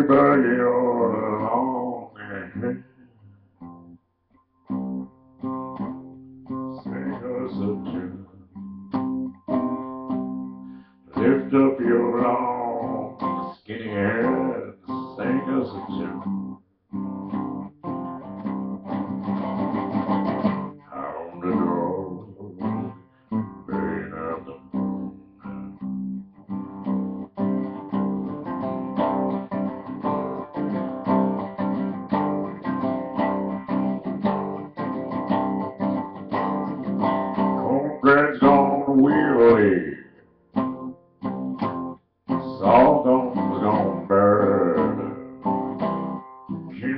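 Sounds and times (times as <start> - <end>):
man singing low voice: 0.0 - 2.8, 6.8 - 8.4, 11.1 - 16.3, 20.9 - 23.0, 23.6 - 24.8, 37.6 - 40.2, 42.4 - 45.5, 46.7 - 46.9
acoustic guitar strummed and picked: 0.0 - 46.9.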